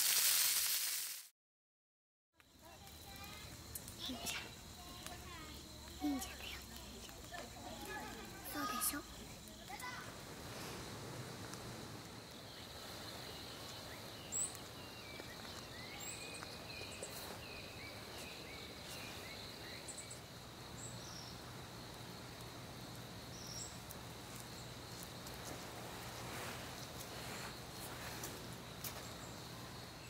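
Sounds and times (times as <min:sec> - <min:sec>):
bird chirps: 0:12.4 - 0:20.2.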